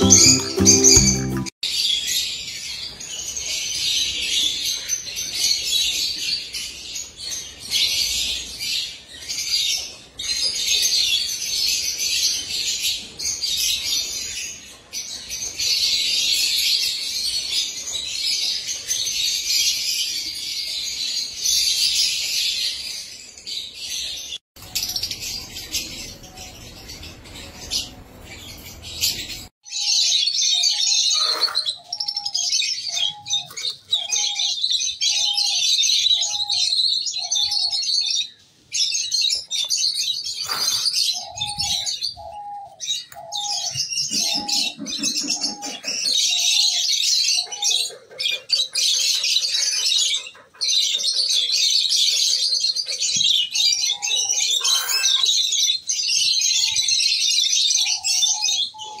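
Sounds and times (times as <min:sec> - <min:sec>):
lovebirds chirping: 0:00.0 - 0:01.5, 0:24.6 - 0:29.5, 0:30.6 - 0:59.0.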